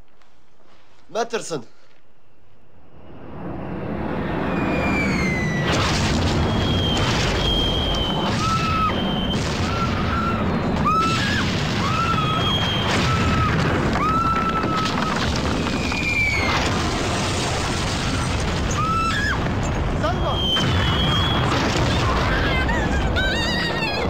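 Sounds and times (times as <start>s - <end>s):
explosions rumbling: 4.4s - 24.0s
sharp blasts: 5.5s - 13.9s.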